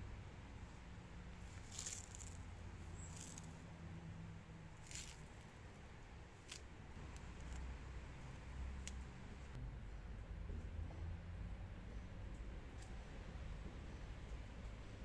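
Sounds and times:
rubber strip scratchy rustles: 0:01.4 - 0:03.6, 0:04.8 - 0:05.6.

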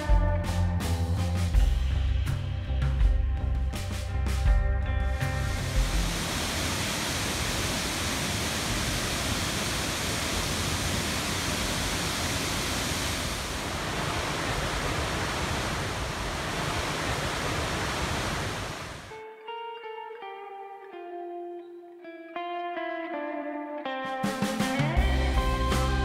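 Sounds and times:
waterfall rushing: 0:05.3 - 0:19.2.

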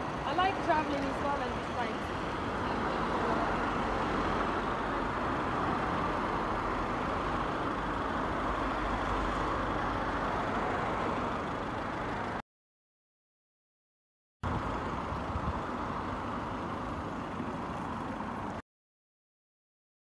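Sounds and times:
road traffic rushing: 0:00.0 - 0:12.4, 0:14.4 - 0:18.6.

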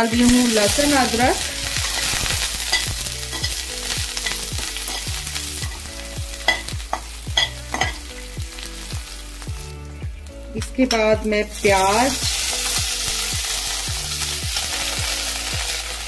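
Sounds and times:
garlic sizzling in hot oil: 0:00.0 - 0:16.0
spoon clicking and scraping pan: 0:01.7 - 0:03.6, 0:04.2 - 0:08.1.

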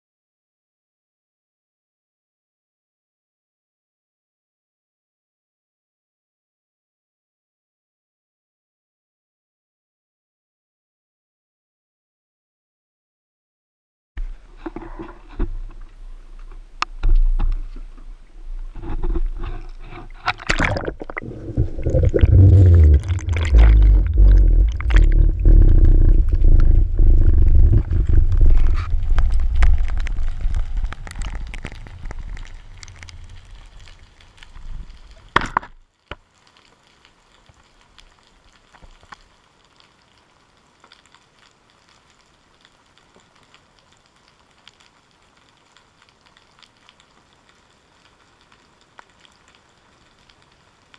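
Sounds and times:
underwater rumbling and gurgling: 0:14.2 - 0:35.4.

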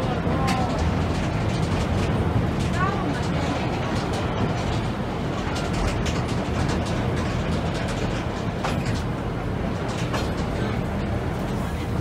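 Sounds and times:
clicks and rattles: 0:00.0 - 0:09.2
rail carriage wheels rumbling: 0:00.0 - 0:12.0.

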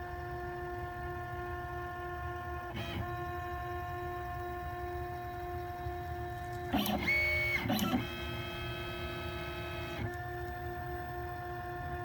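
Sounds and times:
stepper motors whining: 0:04.9 - 0:10.6.

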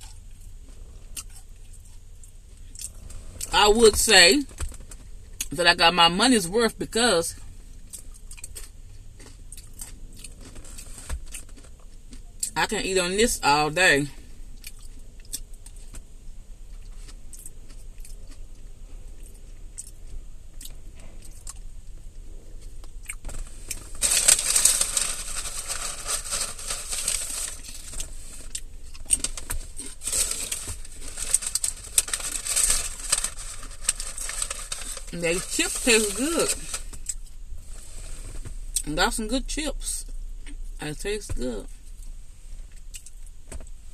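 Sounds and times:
quiet chewing: 0:00.0 - 0:03.5, 0:07.4 - 0:12.5, 0:14.6 - 0:16.0, 0:16.6 - 0:24.0
crinkling rustling handling noise: 0:02.6 - 0:05.3, 0:23.2 - 0:38.8.

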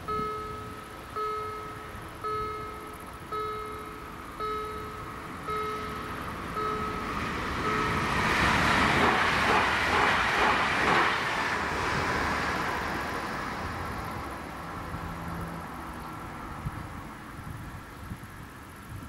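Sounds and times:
crossing warning bell: 0:00.0 - 0:11.0
train wheels on rails: 0:00.0 - 0:15.1.

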